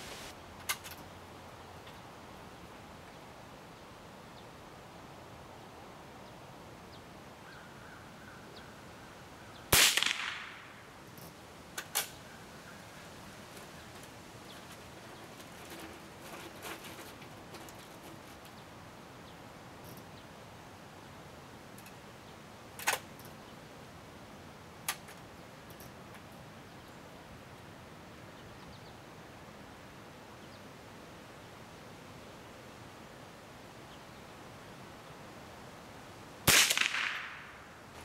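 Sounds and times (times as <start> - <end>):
gunshot ringing out: 9.7 - 10.8, 36.5 - 37.6.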